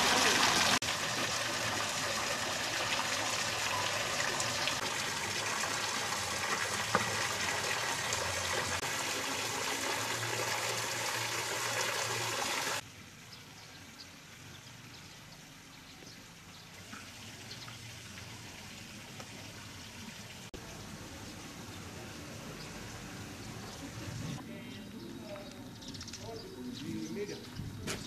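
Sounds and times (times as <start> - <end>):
running water rushing: 0.0 - 12.8, 16.3 - 20.5.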